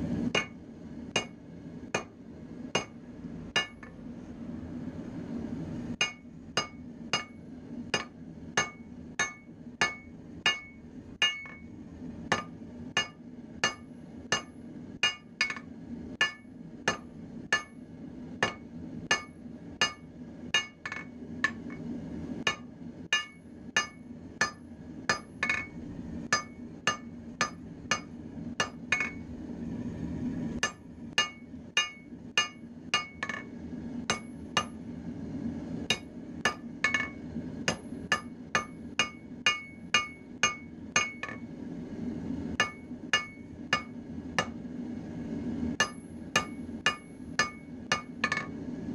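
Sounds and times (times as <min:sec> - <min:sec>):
steady low hum: 0:00.0 - 0:48.9
hammer striking metal on anvil: 0:00.3 - 0:04.0, 0:06.0 - 0:11.7, 0:12.3 - 0:17.8, 0:18.4 - 0:21.8, 0:22.4 - 0:29.2, 0:30.6 - 0:33.5, 0:34.1 - 0:34.8, 0:35.9 - 0:41.4, 0:42.6 - 0:44.6, 0:45.8 - 0:48.6
anvil ringing: 0:08.0 - 0:11.6, 0:22.5 - 0:29.2, 0:30.6 - 0:33.4, 0:35.9 - 0:41.4, 0:42.6 - 0:44.5, 0:45.8 - 0:48.5.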